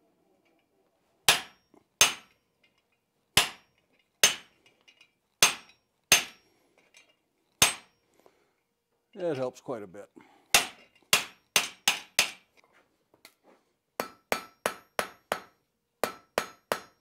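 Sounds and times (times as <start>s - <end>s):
hammer striking metal tool: 1.3s - 2.4s, 3.4s - 4.6s, 5.4s - 6.4s, 7.6s - 8.0s, 10.5s - 12.4s, 14.0s - 17.0s.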